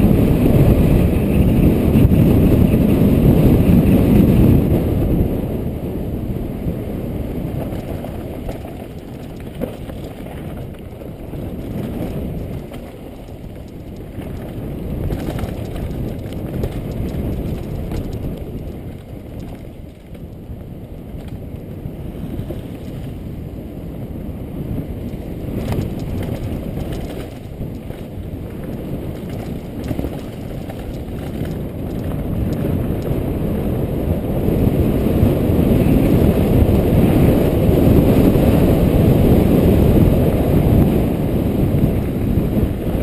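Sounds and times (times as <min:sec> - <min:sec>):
bike rattling: 0:00.0 - 0:24.0, 0:24.6 - 0:40.8
tyres rumbling on dirt trail: 0:00.0 - 0:43.0
wind buffeting microphone: 0:00.0 - 0:43.0
sharp clicks and knocks: 0:07.6 - 0:20.4, 0:25.1 - 0:33.1.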